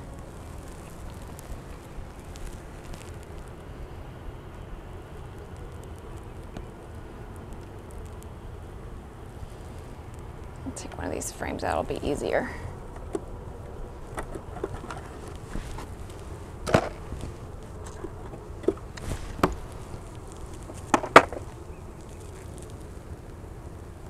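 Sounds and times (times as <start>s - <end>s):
honeybees humming: 0.0s - 24.0s
wooden knocks and scrapes: 20.6s - 21.5s.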